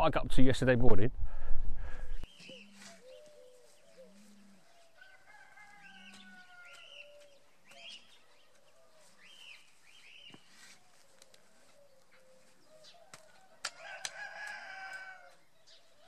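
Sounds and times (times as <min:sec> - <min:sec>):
faint birds chirping: 0:01.4 - 0:16.0
rooster crowing: 0:04.9 - 0:07.0, 0:13.0 - 0:15.4.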